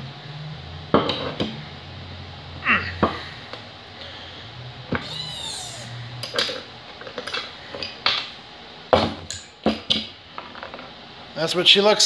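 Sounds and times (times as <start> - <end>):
short high-pitched squeak: 5.0 - 6.0.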